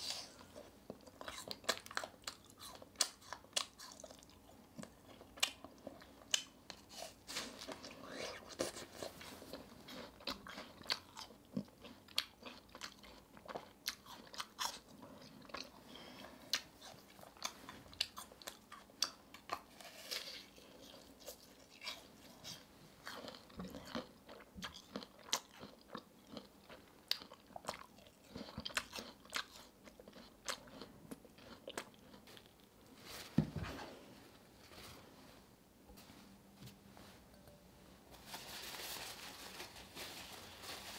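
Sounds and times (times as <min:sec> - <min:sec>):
crunchy chewing of caramel apple: 0:00.0 - 0:32.7.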